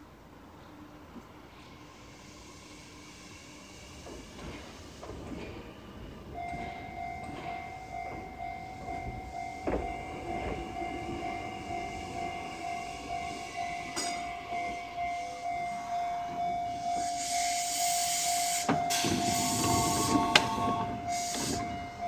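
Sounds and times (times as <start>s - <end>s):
electric train slowing to a stop: 0.0s - 22.0s
steady train whine: 0.0s - 22.0s
loud hiss of air: 16.7s - 21.8s.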